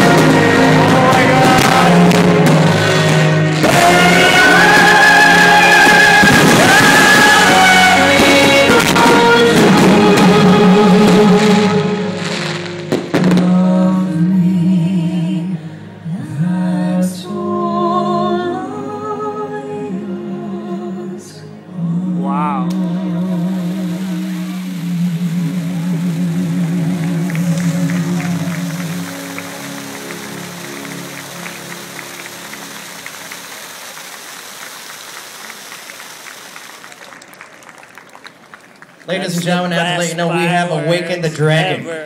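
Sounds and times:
firework fountains hissing: 0:00.0 - 0:13.5, 0:22.4 - 0:39.1
sung or hummed melody: 0:00.0 - 0:33.6
music with long held notes: 0:00.0 - 0:36.8.

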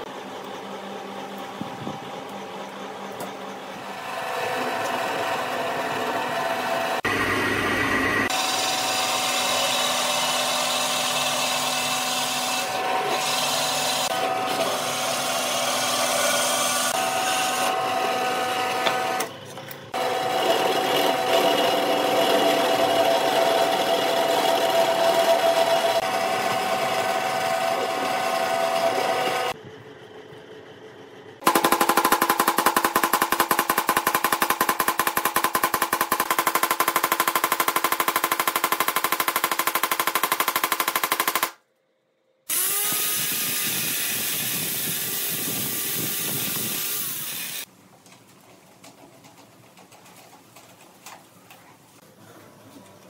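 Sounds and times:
hole saw cutting wood: 0:08.2 - 0:19.3, 0:20.0 - 0:29.6
drill bit boring through wood: 0:42.5 - 0:47.7.

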